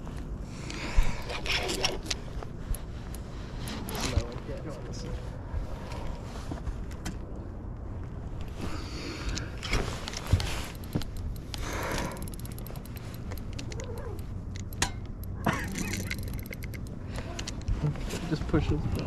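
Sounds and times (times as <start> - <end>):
fishing rod handling rustle: 0.0 - 4.7, 8.4 - 18.4
low steady hum: 0.0 - 19.0
fishing reel clicking: 10.7 - 17.0.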